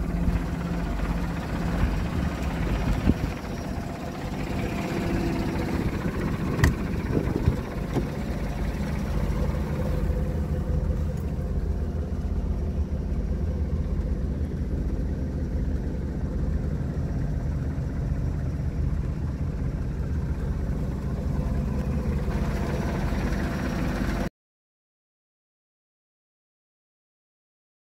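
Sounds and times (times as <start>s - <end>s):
truck engine idling: 0.0s - 24.3s
cab door clicks: 6.5s - 8.2s.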